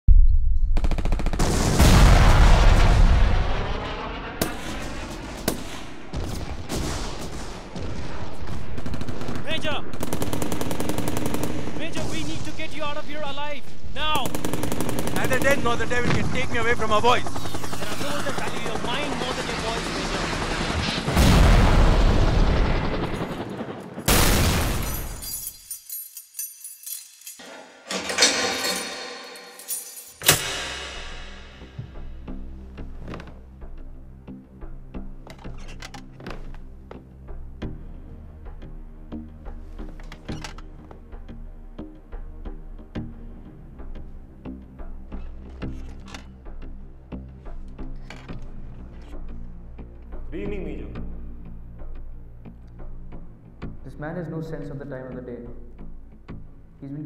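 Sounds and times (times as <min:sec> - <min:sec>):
deep explosion booms: 0:00.1 - 0:08.8, 0:21.1 - 0:23.2
machine-gun fire: 0:00.8 - 0:12.2, 0:14.2 - 0:23.4.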